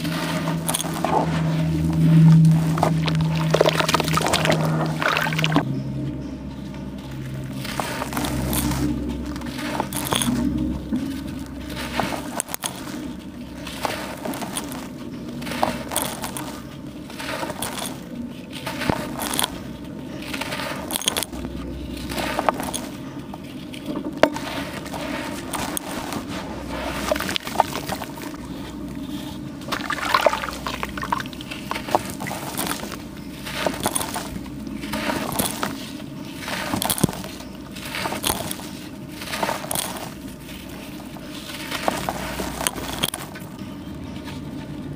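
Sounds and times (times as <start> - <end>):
water sloshing and splashing: 0.0 - 5.6, 26.2 - 33.8
wet charcoal crumbling: 0.0 - 44.9.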